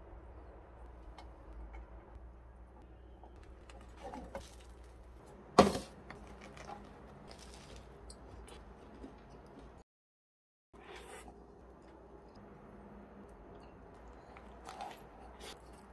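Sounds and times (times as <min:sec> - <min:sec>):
crusty sandwich crunching: 0:06.3 - 0:07.9.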